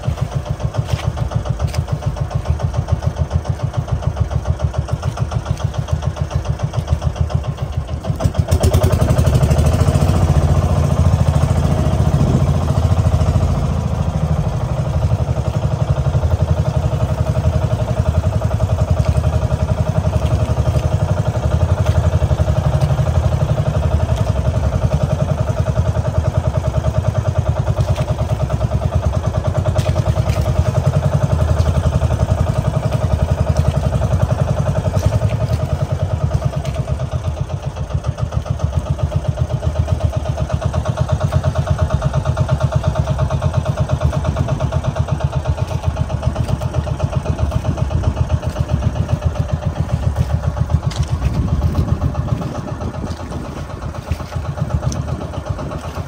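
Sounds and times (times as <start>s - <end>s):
small boat engine running: 0.0s - 56.0s.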